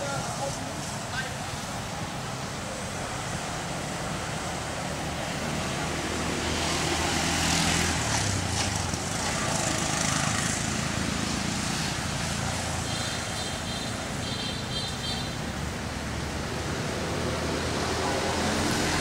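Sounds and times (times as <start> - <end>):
engine running with hiss: 0.0 - 14.1.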